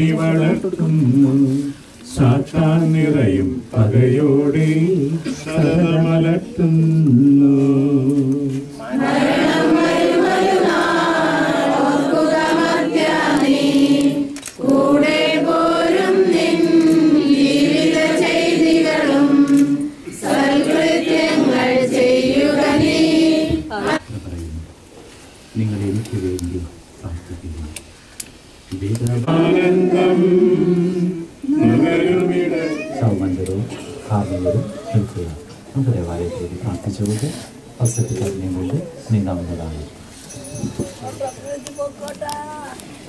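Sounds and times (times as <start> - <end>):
lower voice singing: 0.0 - 24.0, 29.1 - 33.1
group singing a hymn: 0.0 - 24.1, 29.1 - 32.8.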